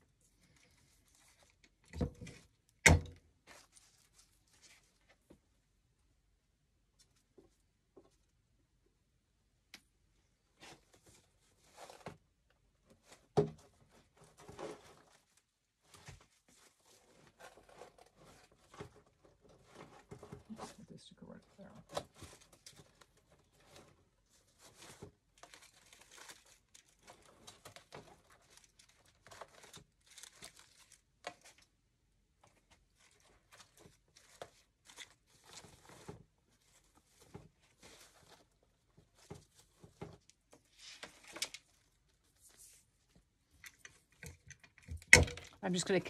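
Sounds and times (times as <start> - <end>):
artificial greenery rustling: 3.4 - 5.3, 32.6 - 43.5.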